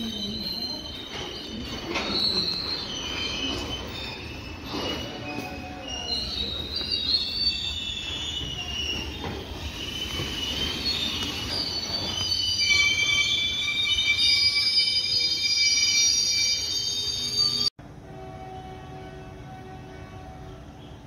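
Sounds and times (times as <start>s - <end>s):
train wheels squealing: 0.0s - 17.7s
low train rumble: 17.8s - 21.0s.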